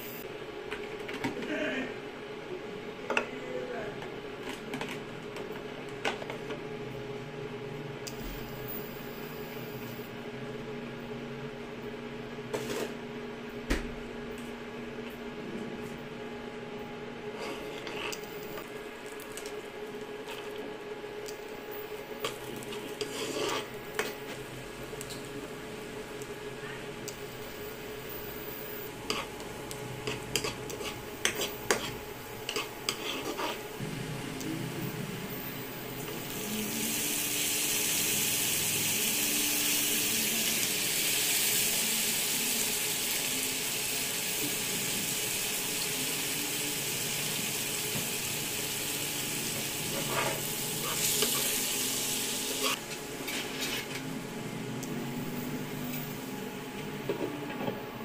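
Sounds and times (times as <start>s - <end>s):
spatula scraping a wok: 17.3s - 18.3s, 22.2s - 24.4s, 29.0s - 29.4s, 30.0s - 33.7s, 49.8s - 54.0s
shrimp sizzling in butter: 21.9s - 24.3s, 30.0s - 33.7s, 35.9s - 53.9s.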